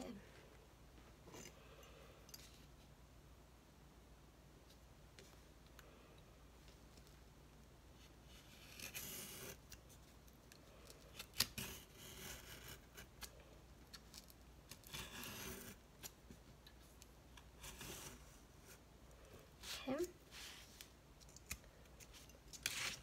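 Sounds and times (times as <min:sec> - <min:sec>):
craft knife cutting foam board: 0:08.0 - 0:09.9, 0:11.1 - 0:13.3, 0:14.2 - 0:16.2, 0:17.4 - 0:18.8, 0:22.6 - 0:23.0.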